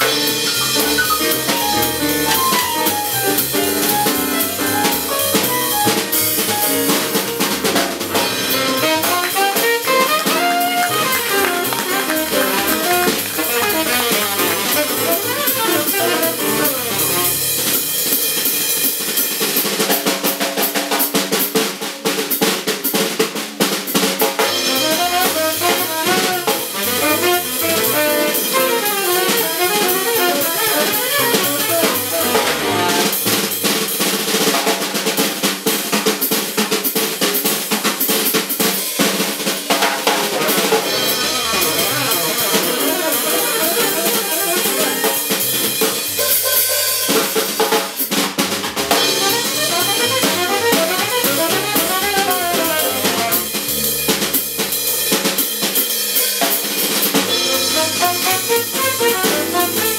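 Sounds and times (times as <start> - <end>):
upright bass: 0.0 - 17.7, 24.5 - 33.1, 40.6 - 46.5, 48.5 - 54.7, 57.3 - 59.9
drum kit playing: 0.0 - 59.9
piano: 0.0 - 59.9
tenor saxophone: 8.3 - 17.9, 24.6 - 33.2, 40.6 - 45.8, 49.0 - 53.8, 57.3 - 59.9.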